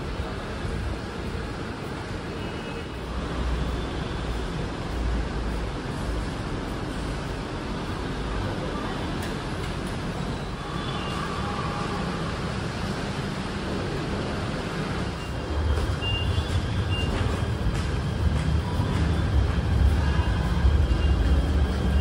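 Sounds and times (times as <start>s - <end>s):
vehicle rumble: 12.6s - 22.0s.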